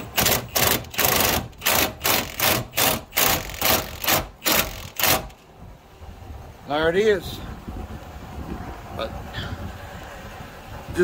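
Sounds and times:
impact gun hammering: 0.0 - 5.4.

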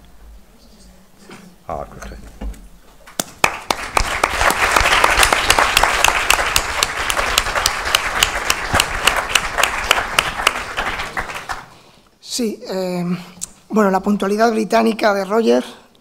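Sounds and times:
audience applauding: 3.0 - 11.8.

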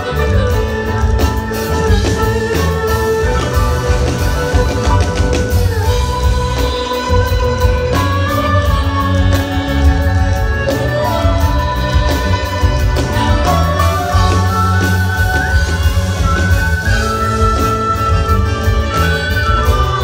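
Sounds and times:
bass: 0.0 - 20.0
bowed fiddles playing melody: 0.0 - 20.0
drum kit beat: 0.0 - 20.0.

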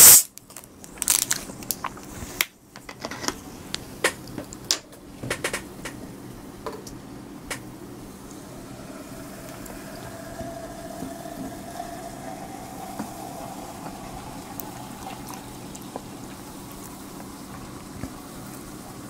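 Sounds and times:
soda fizzing and foaming: 0.0 - 0.3, 7.9 - 19.0
soda pouring into a glass: 8.0 - 19.0.

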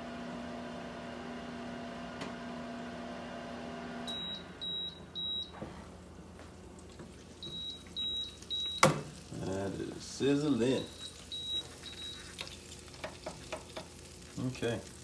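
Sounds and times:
air fryer humming: 0.0 - 15.0
short high beeps: 4.1 - 5.5, 10.8 - 12.2.

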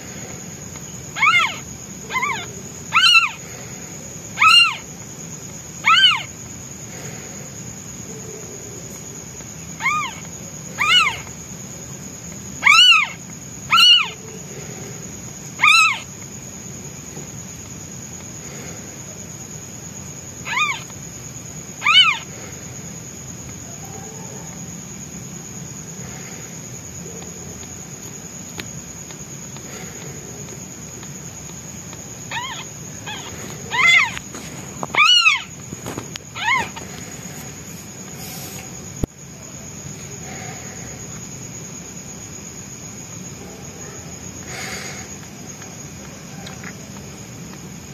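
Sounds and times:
kitten meowing loudly: 1.2 - 3.4, 4.4 - 4.8, 5.8 - 6.3, 10.8 - 11.2, 12.6 - 14.2, 15.6 - 16.0, 20.5 - 20.8, 21.8 - 22.2, 32.3 - 34.2, 35.0 - 35.5, 36.4 - 36.8.

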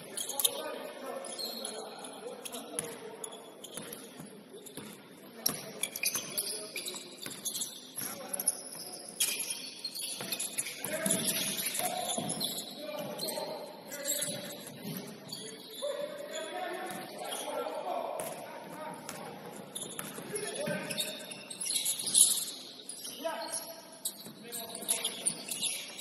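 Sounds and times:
basketball bouncing on court: 4.8 - 6.3, 10.2 - 13.2, 19.1 - 21.0.

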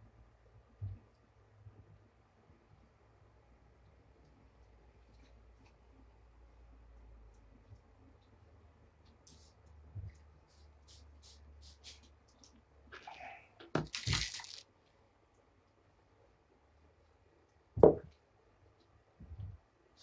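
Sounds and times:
packet crinkling and tearing: 13.8 - 14.7.

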